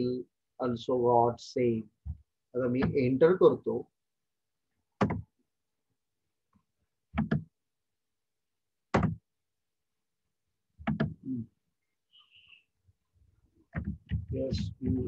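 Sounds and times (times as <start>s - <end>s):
computer keyboard keys knocking: 5.0s - 5.2s, 7.2s - 7.5s, 8.9s - 9.2s, 10.8s - 11.2s, 13.8s - 15.0s.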